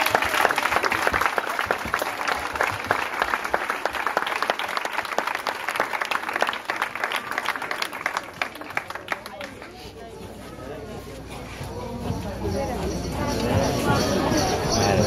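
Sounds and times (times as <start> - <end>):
crowd applauding: 0.0 - 9.8.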